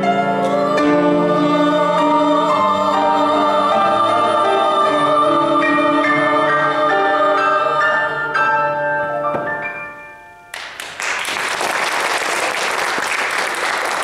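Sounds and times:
women's choir singing: 0.0 - 9.0
piano accompaniment: 0.0 - 11.0
audience applause: 10.6 - 14.0.

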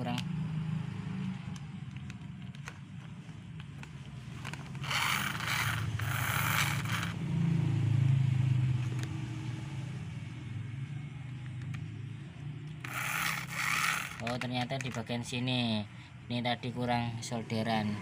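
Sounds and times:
plastic gears scraping and rattling: 1.5 - 7.2, 12.8 - 15.3
small electric motor humming: 4.4 - 7.2, 12.8 - 14.8.

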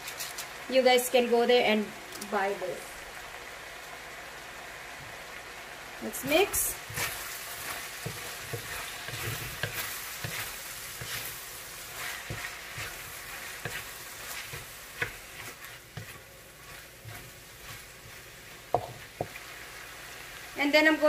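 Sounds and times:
vegetables sizzling in a wok: 0.0 - 21.0
wooden spatula scraping wok: 6.1 - 20.4.

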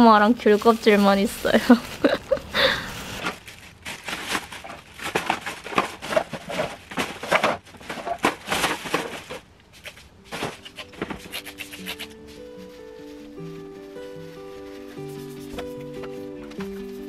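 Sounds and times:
plastic bags rustling and crinkling: 0.0 - 17.0
soft music: 10.1 - 17.0.

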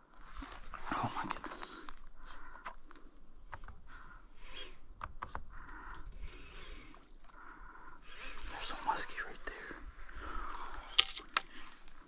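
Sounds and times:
sharp clicks: 10.5 - 12.0.

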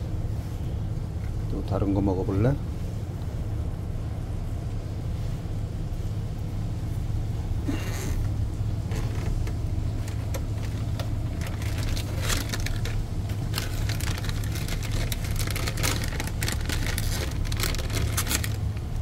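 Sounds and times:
low machinery drone: 0.0 - 19.0
clicks and crackles: 7.9 - 19.0.

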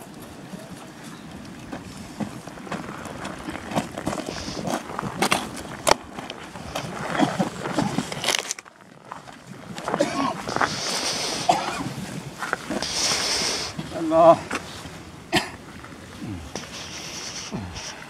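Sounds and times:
footsteps crunching on loose rock: 0.1 - 14.8
hiss of sulfur vents: 4.1 - 4.9, 10.4 - 14.9, 16.2 - 18.0.

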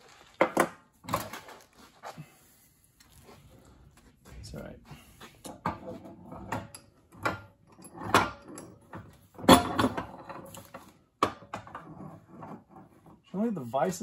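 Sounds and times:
metal clanks from vise: 5.4 - 12.6.

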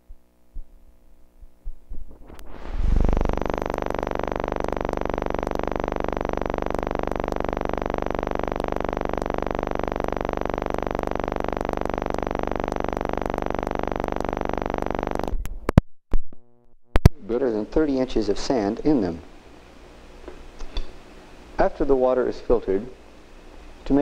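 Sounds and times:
film soundtrack hum and hiss: 17.2 - 24.0.

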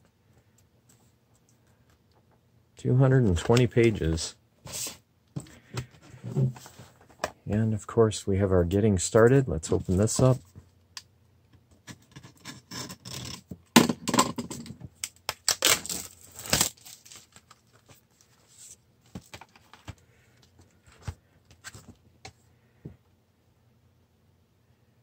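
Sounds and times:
plastic packaging crinkling: 15.0 - 19.8.

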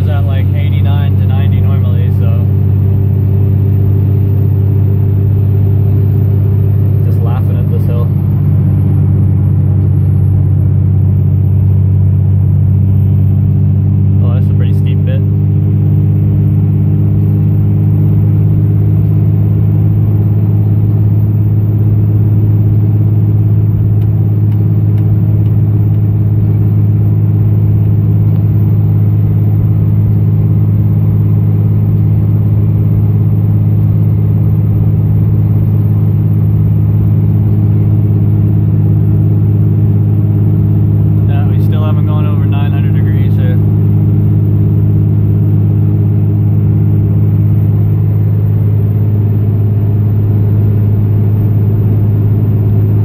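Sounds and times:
diesel engine droning: 0.0 - 53.0.

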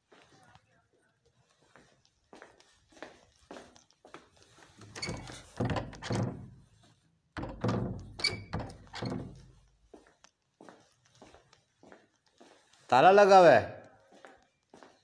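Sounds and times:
door thudding and rattling: 4.8 - 6.7, 7.4 - 9.6.

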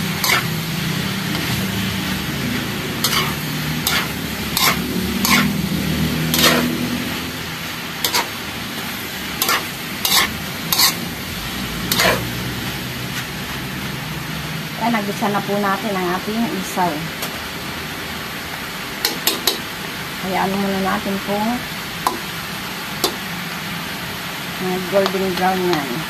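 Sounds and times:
food sizzling: 0.0 - 26.0
ladle scraping against wok: 0.1 - 0.7, 2.9 - 5.7, 6.3 - 7.2, 8.0 - 11.2, 11.8 - 12.4.

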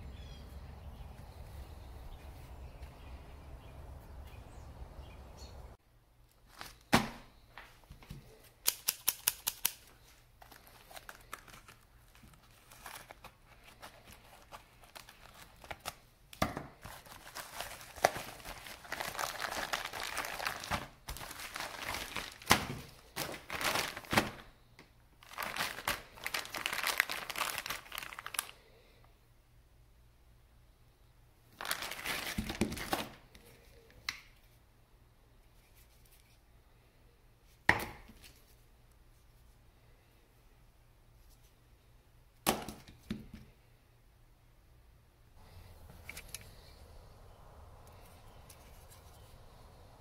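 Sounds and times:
sharp clicks: 8.6 - 9.9
plastic packaging crinkling: 9.1 - 16.0, 16.7 - 24.5, 25.2 - 28.6, 31.6 - 33.2.

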